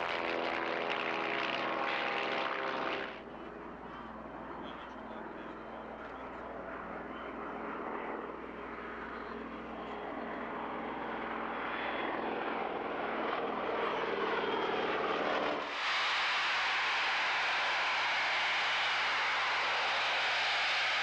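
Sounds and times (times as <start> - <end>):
propeller planes droning past: 0.0 - 21.0
jet hiss: 15.4 - 21.0.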